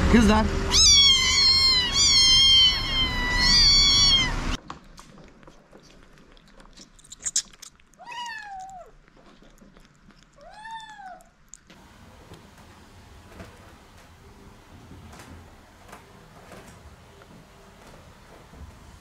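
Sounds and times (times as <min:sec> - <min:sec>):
kitten meowing softly: 0:00.7 - 0:04.4
kittens meowing: 0:00.7 - 0:04.6.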